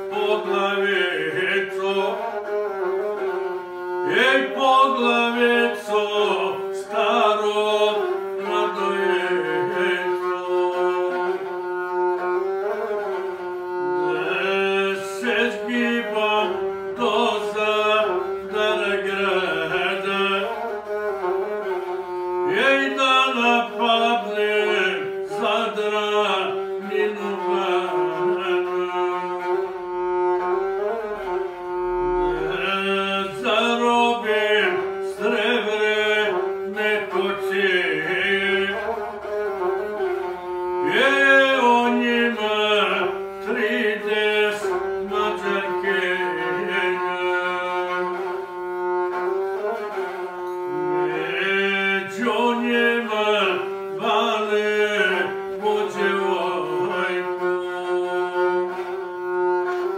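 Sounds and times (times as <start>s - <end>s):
man singing: 0.0s - 3.3s, 4.1s - 11.5s, 14.1s - 20.9s, 22.4s - 29.8s, 32.4s - 40.2s, 40.8s - 48.4s, 51.0s - 59.1s
bowed single-string fiddle: 0.0s - 59.9s.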